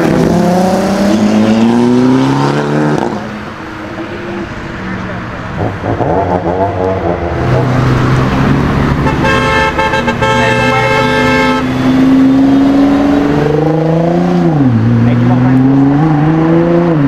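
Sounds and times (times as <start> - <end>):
car engine revving: 0.0 - 17.0
car horn: 8.9 - 12.0.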